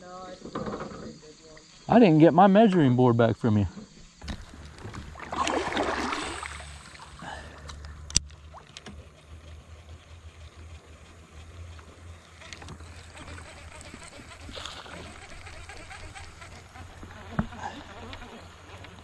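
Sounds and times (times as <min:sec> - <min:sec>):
water splashing around kayak: 0:04.2 - 0:19.0.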